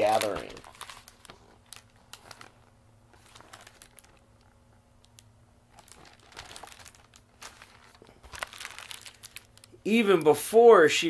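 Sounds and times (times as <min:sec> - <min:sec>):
paper pages rustling: 0:00.0 - 0:04.5, 0:05.7 - 0:09.6
faint low hum: 0:00.0 - 0:11.0.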